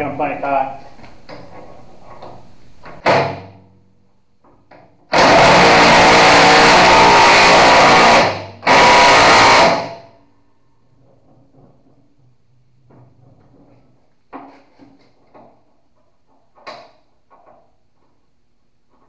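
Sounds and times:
impact wrench hammering: 3.0 - 3.6, 5.1 - 10.1.

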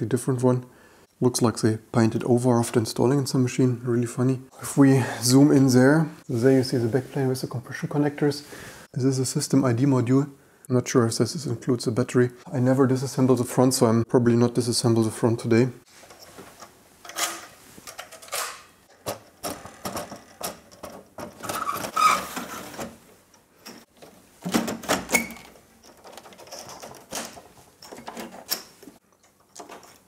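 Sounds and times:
metal clicks scrapes and knocks: 16.1 - 30.0.

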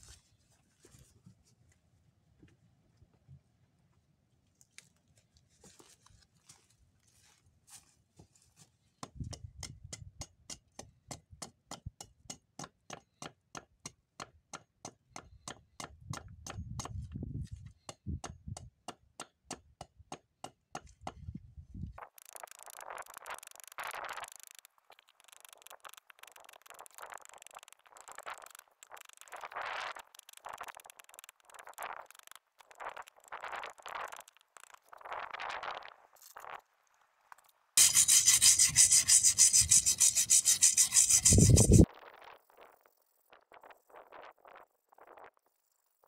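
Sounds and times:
faint ticks: 22.0 - 34.9.

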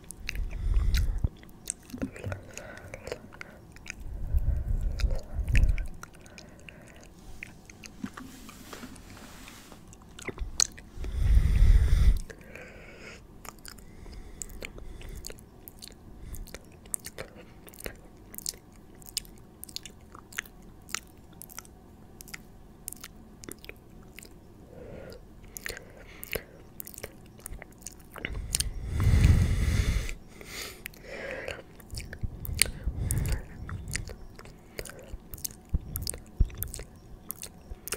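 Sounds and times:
wet mouth clicks and smacks: 0.0 - 8.2, 10.0 - 10.9, 14.4 - 24.4, 25.5 - 29.4, 30.8 - 37.9.

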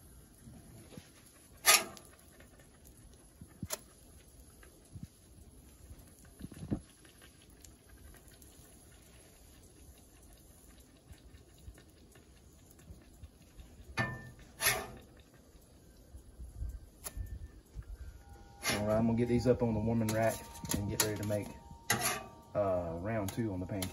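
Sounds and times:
pancakes sizzling on griddle: 0.0 - 19.0, 20.0 - 23.9
spatula scraping griddle: 1.6 - 2.2, 14.0 - 15.1, 18.4 - 22.5.

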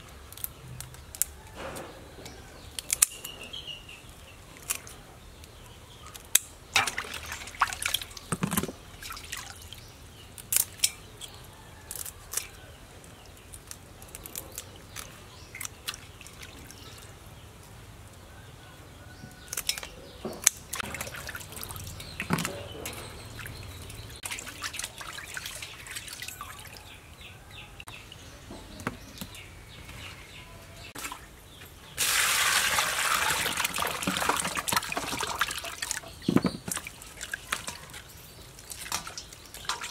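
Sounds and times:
water dripping: 6.3 - 11.0, 20.5 - 27.2, 32.0 - 39.9
hands splashing water in bowl: 6.8 - 9.7, 32.0 - 39.9.

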